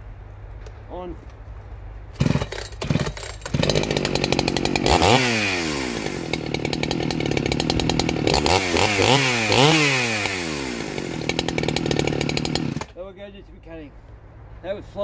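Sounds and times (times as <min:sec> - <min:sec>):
chainsaw starting and revving: 0:02.2 - 0:13.0.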